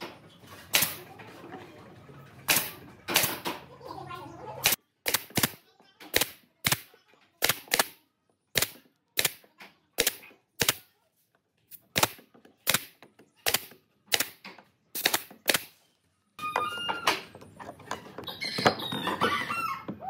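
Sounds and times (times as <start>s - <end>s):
nail gun firing: 0.7s - 1.0s, 2.5s - 3.5s, 4.6s - 9.4s, 10.0s - 10.8s, 11.8s - 15.8s.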